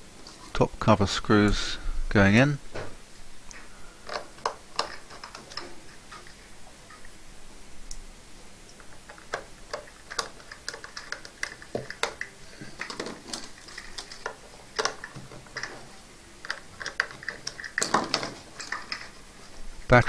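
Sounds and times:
hands shifting metal cover: 4.0s - 7.0s, 8.7s - 19.6s
screwdriver clicking on metal case: 4.1s - 6.4s, 8.7s - 19.2s.

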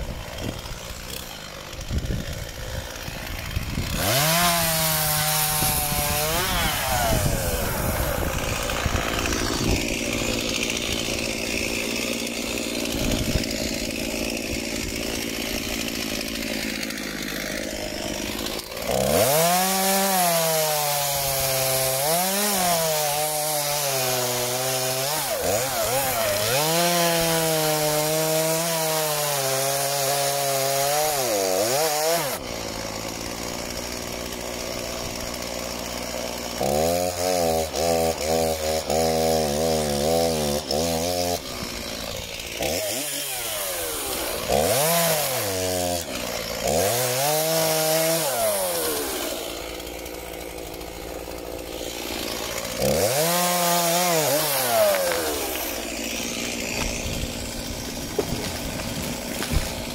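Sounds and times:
chainsaw revving and cutting wood: 0.0s - 59.9s.

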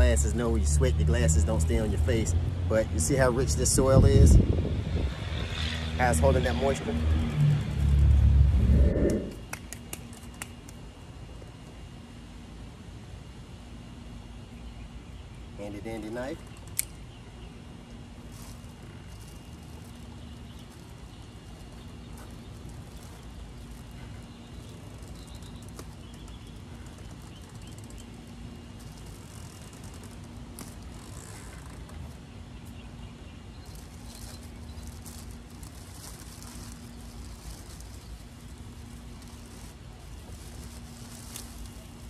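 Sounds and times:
low outdoor hum: 0.0s - 42.0s
plastic bag crinkling: 18.2s - 32.1s, 33.6s - 42.0s.

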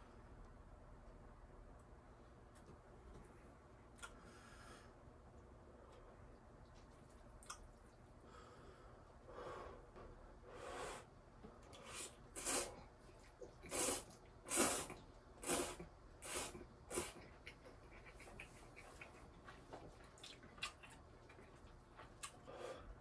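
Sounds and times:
person slurping noodles: 11.8s - 12.8s, 13.6s - 17.2s.

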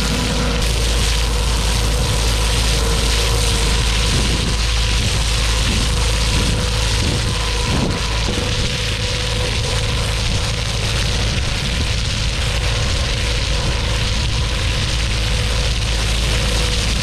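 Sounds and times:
engine and pump drone: 0.0s - 17.0s
faint steady whine: 0.0s - 17.0s.

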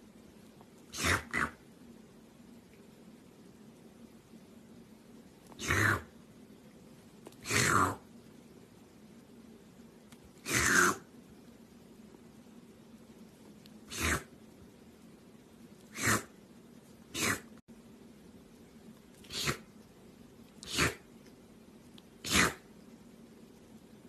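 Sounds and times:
kitten sneezing: 0.9s - 1.6s, 10.4s - 11.0s, 13.9s - 14.3s, 15.9s - 16.3s, 17.1s - 17.5s, 19.2s - 19.7s, 20.6s - 21.0s, 22.2s - 22.6s.

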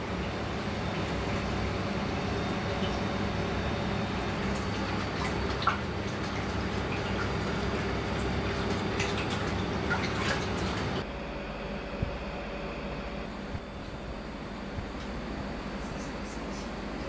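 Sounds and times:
drips: 0.0s - 11.0s
kitchen machinery humming: 0.0s - 17.0s.

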